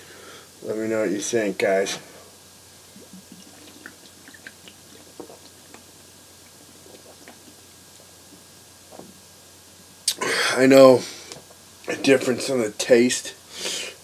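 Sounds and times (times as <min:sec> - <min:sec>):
man gulping and swallowing: 0:02.8 - 0:09.2, 0:10.0 - 0:10.4.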